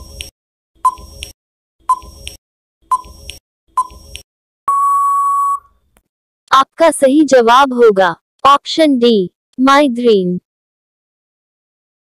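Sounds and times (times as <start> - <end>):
timer ticking: 0.0 - 4.3
steady high beep: 4.7 - 5.7.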